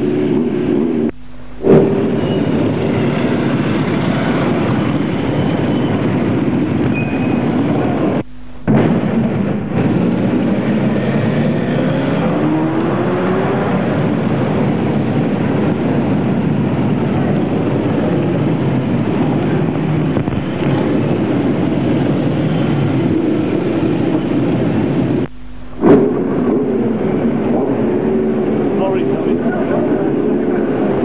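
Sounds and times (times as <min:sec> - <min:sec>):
motorcycle engines running: 0:00.0 - 0:31.0.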